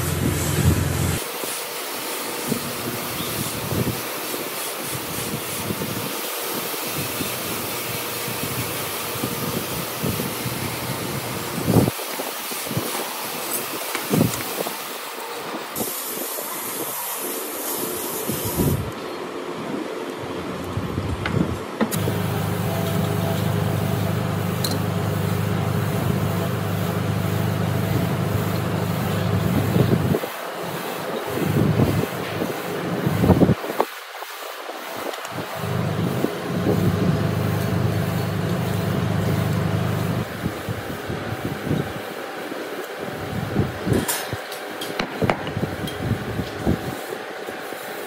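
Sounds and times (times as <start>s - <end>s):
steady hissing background noise: 0.0s - 48.0s
motor humming: 22.0s - 30.2s, 35.6s - 40.3s.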